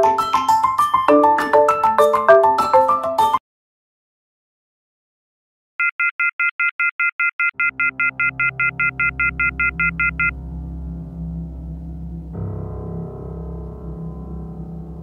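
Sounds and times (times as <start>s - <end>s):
phone busy tone beeps: 5.8s - 10.4s
low ambient music drone: 8.0s - 15.0s.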